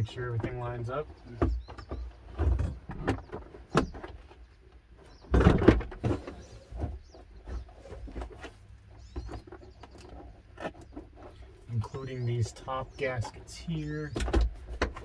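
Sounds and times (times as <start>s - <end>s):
plastic heater box knocking and scraping: 0.3s - 4.4s, 5.1s - 12.0s, 14.1s - 15.0s.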